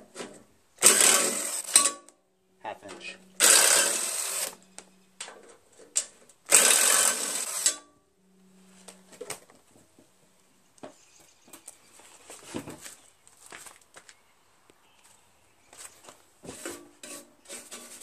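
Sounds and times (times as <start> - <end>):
cordless drill spinning bolt: 0.8 - 1.9, 6.5 - 7.8.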